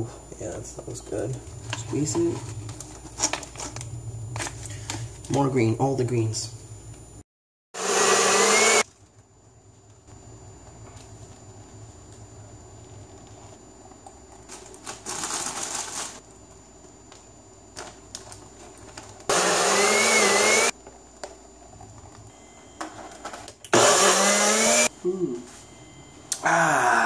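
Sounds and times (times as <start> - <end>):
blender motor whine: 7.8 - 8.9, 19.3 - 20.7, 23.6 - 24.9.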